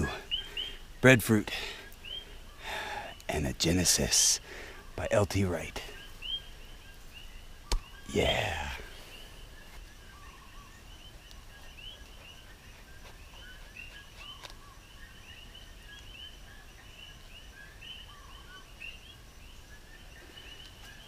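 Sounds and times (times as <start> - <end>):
faint low outdoor rumble: 0.0 - 21.0
small birds chirping: 0.0 - 21.0.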